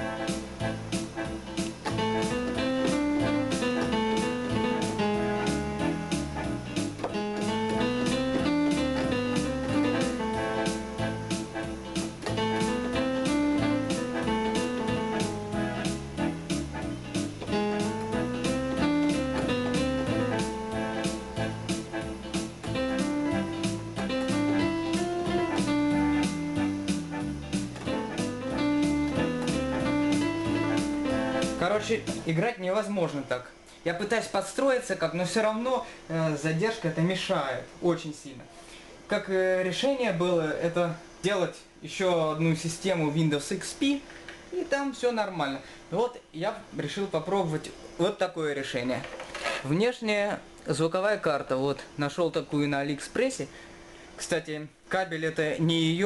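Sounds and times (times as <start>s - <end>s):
keyboard melody: 0.0s - 32.4s
arranger keyboard accompaniment: 0.0s - 38.2s
bass line: 0.6s - 32.3s
guitar-like chords: 1.6s - 32.3s
drum beat: 11.9s - 32.3s.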